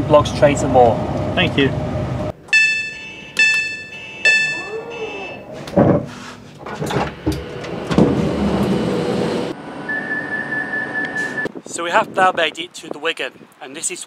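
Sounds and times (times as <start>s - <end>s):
train door warning beeps: 2.5s - 5.6s, 9.9s - 11.5s
thuds and clunks: 5.6s - 8.8s.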